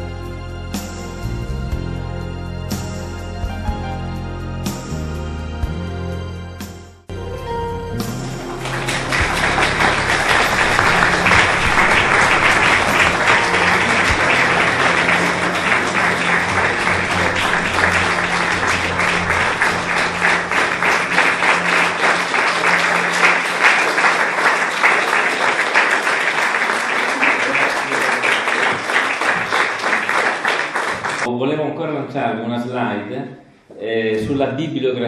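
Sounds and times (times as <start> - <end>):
music: 0.0 - 30.3
audience applauding: 7.1 - 31.3.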